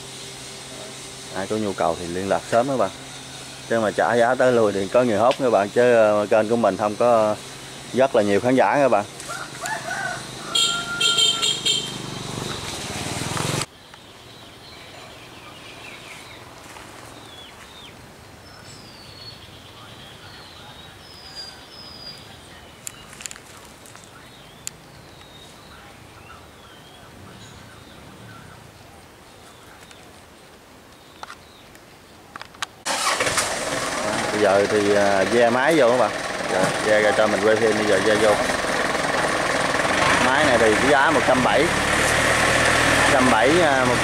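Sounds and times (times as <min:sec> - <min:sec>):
small birds chirping faintly: 0:13.6 - 0:32.8.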